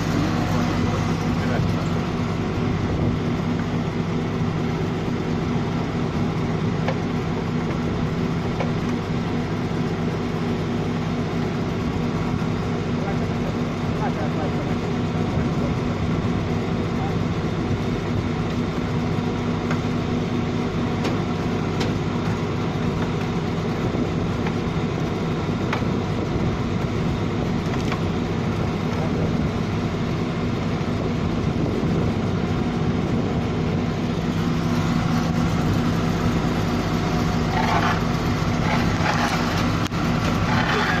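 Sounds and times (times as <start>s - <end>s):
diesel engine running steadily: 0.0s - 41.0s.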